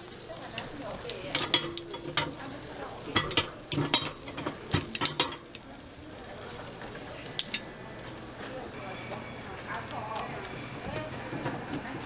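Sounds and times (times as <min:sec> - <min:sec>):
batter sizzling: 0:00.0 - 0:12.0
metal pick clinking on iron molds: 0:01.3 - 0:02.4, 0:03.1 - 0:05.4.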